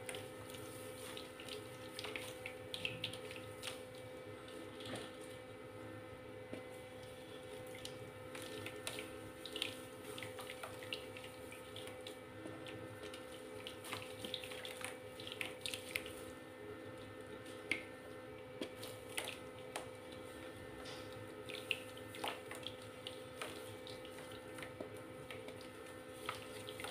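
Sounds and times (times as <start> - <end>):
water drips and splashes: 0.0 - 5.4, 7.0 - 16.3, 17.4 - 17.9, 18.6 - 26.9.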